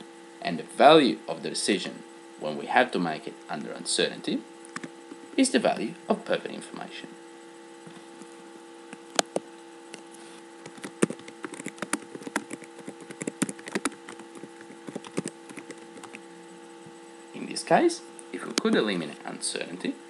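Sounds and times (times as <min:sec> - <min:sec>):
electrical hum: 0:00.0 - 0:20.0
keyboard typing: 0:04.7 - 0:04.9, 0:10.6 - 0:16.2.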